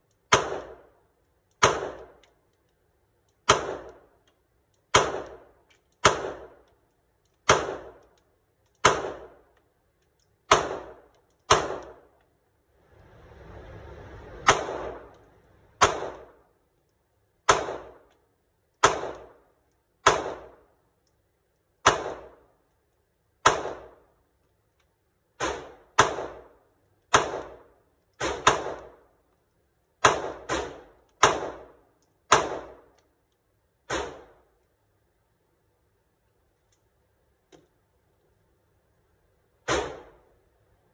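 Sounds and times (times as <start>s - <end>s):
pistol shots echoing indoors: 21.8s - 22.5s.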